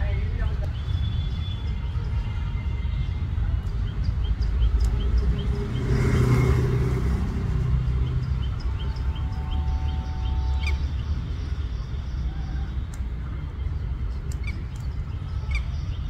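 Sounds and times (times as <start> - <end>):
street traffic rumble: 0.0 - 16.0
vehicle passing: 4.6 - 12.0.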